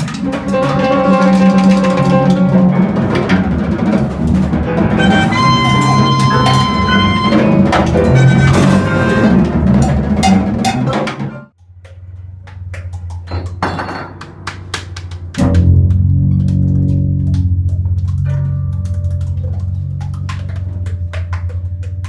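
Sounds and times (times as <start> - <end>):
busy drumming on drum kit: 0.0 - 11.5
band playing low held notes: 0.2 - 11.5.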